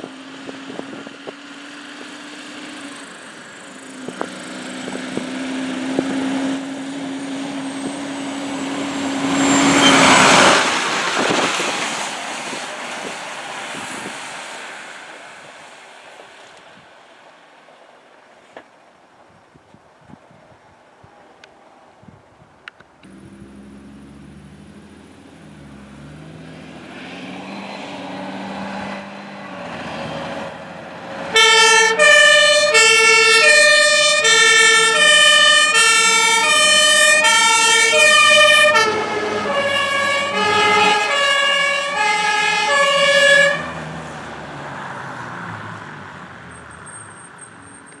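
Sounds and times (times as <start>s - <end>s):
fire engine running: 30.4s - 44.5s
two-tone siren: 31.3s - 43.8s.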